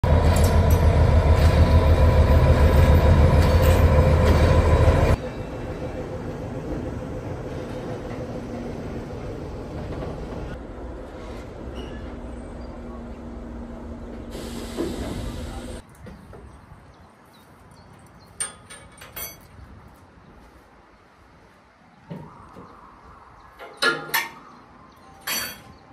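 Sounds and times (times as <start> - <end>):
locomotive engine droning: 0.0 - 15.8.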